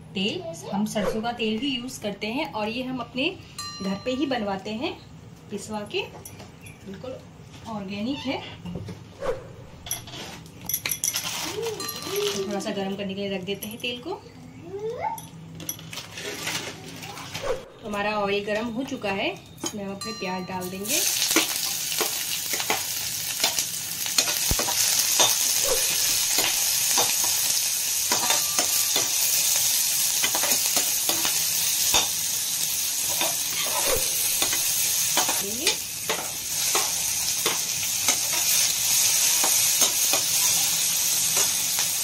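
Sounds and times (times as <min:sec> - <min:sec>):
onions sizzling in oil: 0:20.1 - 0:42.0
metal spatula scraping a pan: 0:33.1 - 0:34.6.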